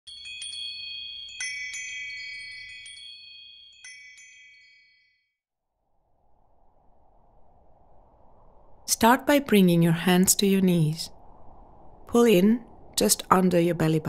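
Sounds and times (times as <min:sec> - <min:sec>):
chimes ringing: 0:00.1 - 0:05.4.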